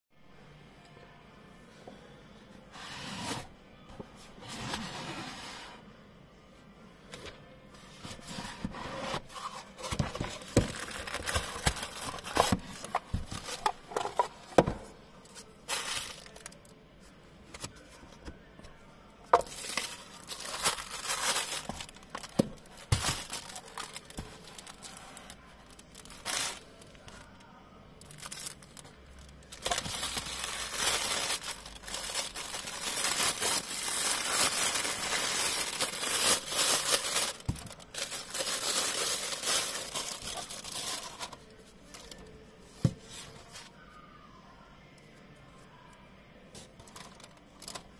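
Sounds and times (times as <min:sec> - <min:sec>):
plastic wrapping crinkling: 0:09.8 - 0:14.6, 0:15.3 - 0:16.7, 0:19.4 - 0:27.3, 0:28.0 - 0:42.2.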